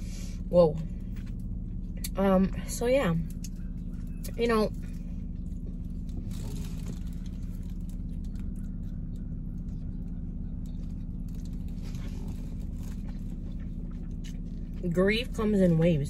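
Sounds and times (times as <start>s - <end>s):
car cabin hum: 0.0s - 16.0s
person chewing: 5.5s - 14.8s.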